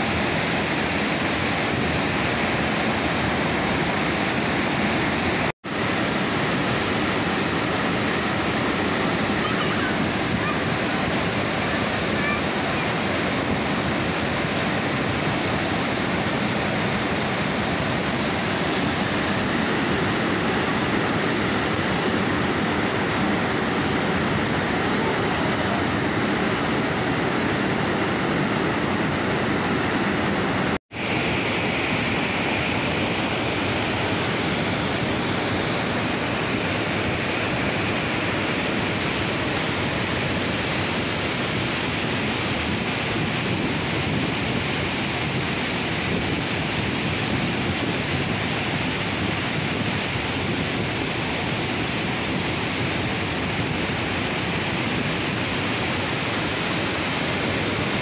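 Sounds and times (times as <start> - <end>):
water rushing over spillway: 0.0 - 58.0.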